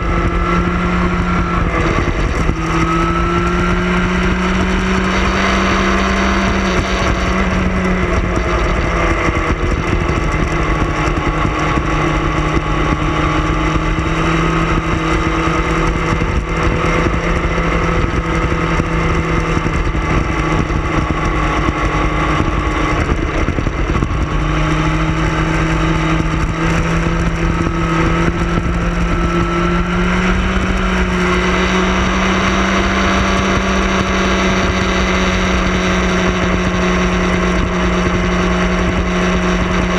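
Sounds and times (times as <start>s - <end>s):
motorcycle engine: 0.0s - 39.9s
wind rush: 0.0s - 39.9s.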